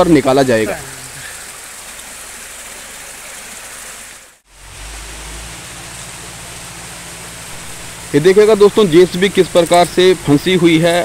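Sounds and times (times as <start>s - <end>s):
low engine-like hum: 2.9s - 11.0s.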